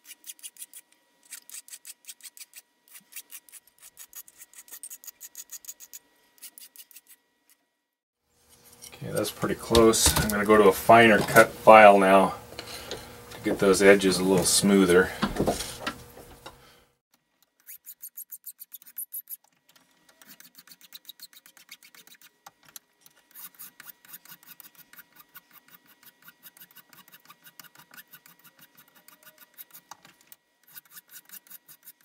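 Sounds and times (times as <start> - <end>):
hand file rasping on metal: 0.0 - 7.2, 17.6 - 19.4, 20.2 - 22.3, 23.3 - 29.9, 30.6 - 32.0.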